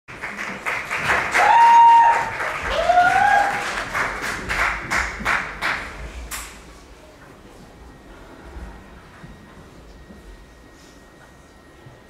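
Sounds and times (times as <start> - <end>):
audience clapping and cheering: 0.1 - 6.1
loud shouted whoops: 1.3 - 3.8.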